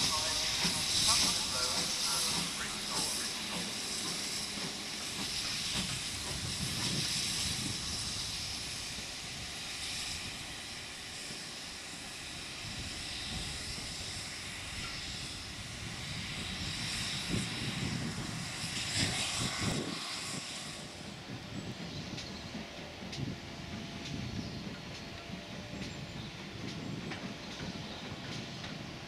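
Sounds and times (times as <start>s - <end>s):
locomotive rumbling pulses: 0.0s - 11.4s
steam locomotive hissing: 0.0s - 29.0s.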